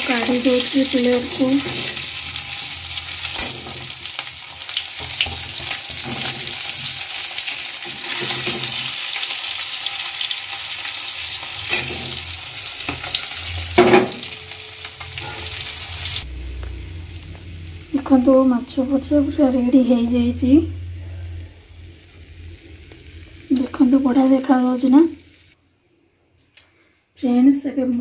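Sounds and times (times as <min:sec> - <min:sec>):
fish sizzling in hot oil: 0:00.0 - 0:20.6, 0:21.5 - 0:25.6
metal spatula scraping pan: 0:00.2 - 0:07.1, 0:07.8 - 0:16.2.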